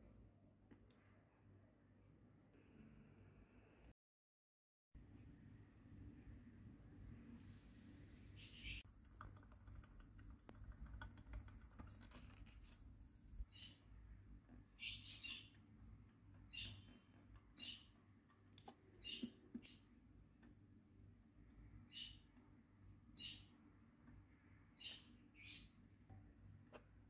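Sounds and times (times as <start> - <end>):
faint bird chirps: 8.1 - 8.9, 13.4 - 13.9, 14.7 - 15.6, 16.4 - 18.0, 21.6 - 22.4, 23.1 - 23.7, 24.3 - 26.0.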